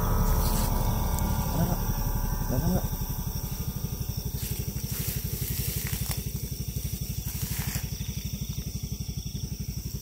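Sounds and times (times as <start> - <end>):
leaves rustling: 0.0 - 1.9, 3.3 - 9.1
small engine idling: 0.0 - 10.0.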